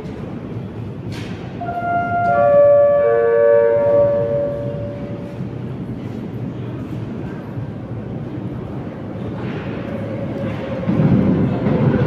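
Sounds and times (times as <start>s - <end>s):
low station rumble: 0.0s - 12.0s
train horn chord: 1.6s - 5.5s.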